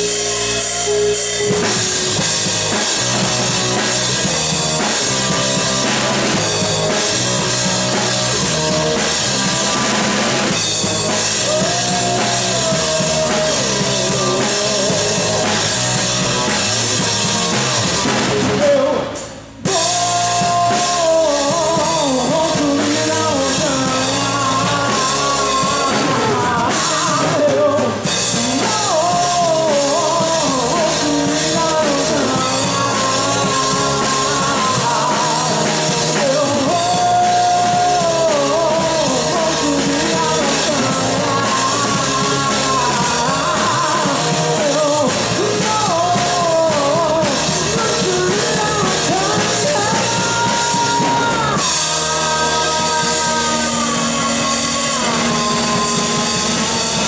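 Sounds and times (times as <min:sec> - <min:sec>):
man singing into a microphone: 0:00.0 - 0:17.2, 0:18.1 - 0:57.0
backing sample: 0:00.0 - 0:18.6
drum kit: 0:00.0 - 0:57.0
electric bass: 0:00.0 - 0:57.0.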